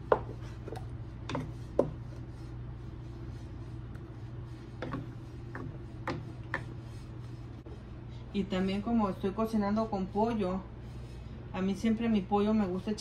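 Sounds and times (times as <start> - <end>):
steady low hum: 0.0 - 13.0
wooden spoon scraping a metal pot: 0.2 - 7.8.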